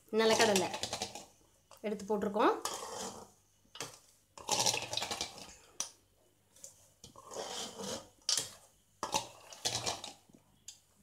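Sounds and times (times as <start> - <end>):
spoon scraping rice in bowl: 2.6 - 5.5, 6.7 - 10.1.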